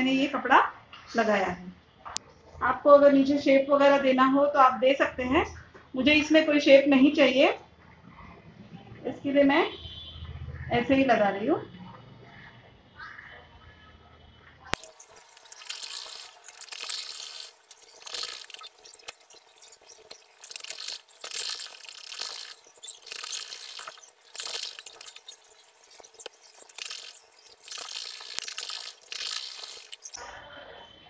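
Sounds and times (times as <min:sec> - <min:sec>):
sewing machine stitching: 0:14.8 - 0:30.2.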